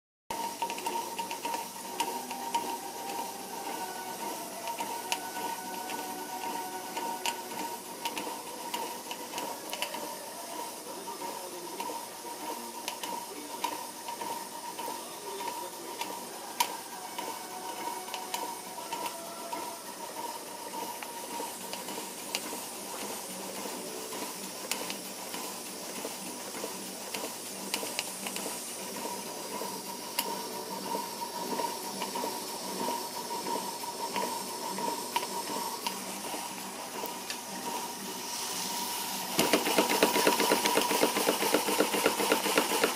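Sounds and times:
steam hissing: 0.3 - 42.9
thin whistle-like tone: 1.9 - 8.5, 14.3 - 21.5.

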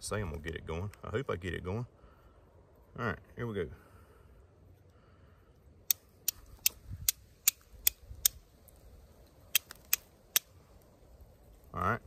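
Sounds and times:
steel striker scraping flint: 5.9 - 8.8, 9.5 - 10.6.

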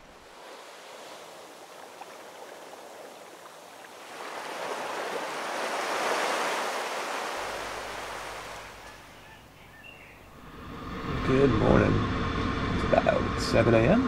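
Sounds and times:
small waves washing onto sand: 0.0 - 9.4.

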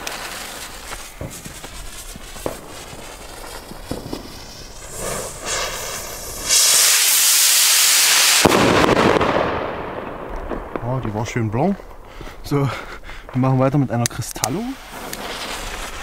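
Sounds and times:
fuse crackling: 0.0 - 9.2, 9.9 - 16.0
firework rocket hissing: 0.0 - 9.9, 14.6 - 16.0
firework bang: 0.0 - 11.2.

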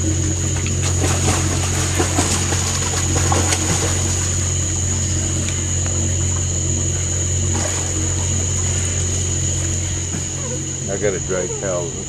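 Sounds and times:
boat machinery humming: 0.0 - 12.0
high whine: 0.0 - 12.0
water splashes: 0.5 - 4.6.

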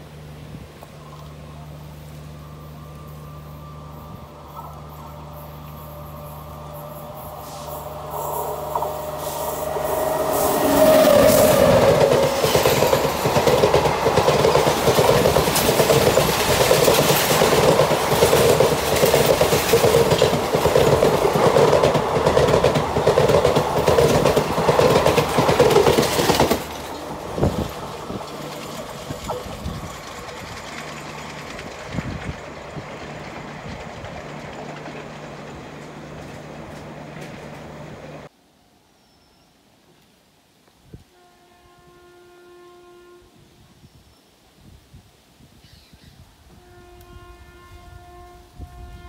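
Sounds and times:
train wheels clattering on rails: 7.6 - 38.3.

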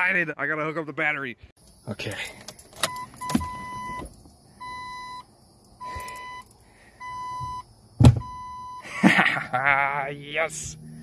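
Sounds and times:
dashboard warning chime beeping: 2.8 - 5.2, 5.8 - 7.6, 8.2 - 8.9
loud thump: 8.0 - 8.4.

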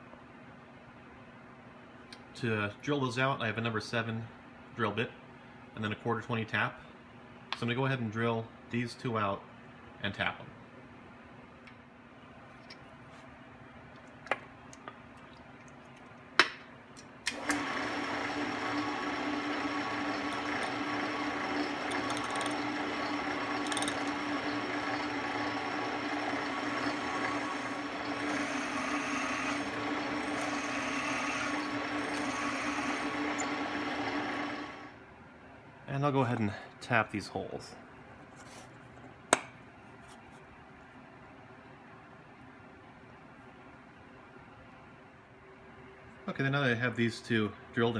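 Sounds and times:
drill press humming: 17.3 - 35.0.

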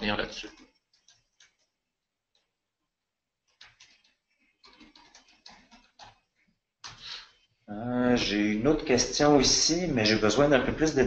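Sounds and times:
keyboard typing: 0.4 - 2.6, 3.4 - 7.2.

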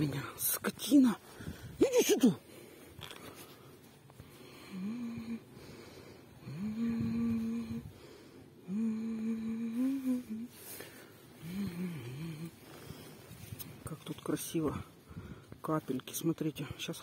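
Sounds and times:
woman humming: 4.6 - 5.5, 6.4 - 8.0, 8.6 - 12.8.

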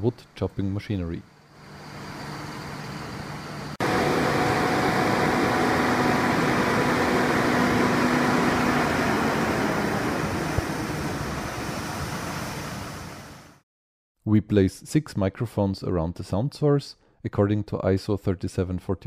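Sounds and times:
wood chipper droning: 1.6 - 11.7.

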